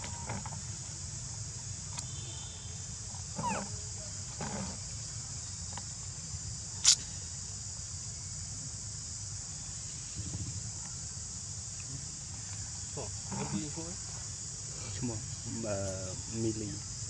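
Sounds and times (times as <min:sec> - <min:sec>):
insects droning: 0:00.0 - 0:17.0
macaque calls: 0:03.4 - 0:03.7.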